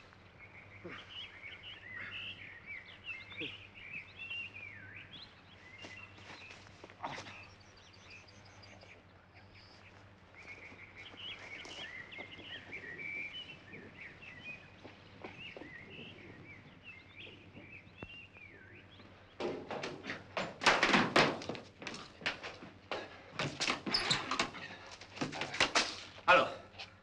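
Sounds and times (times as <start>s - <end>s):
songbirds chirping: 0.0s - 27.0s
loud knocks and thuds: 19.4s - 22.1s.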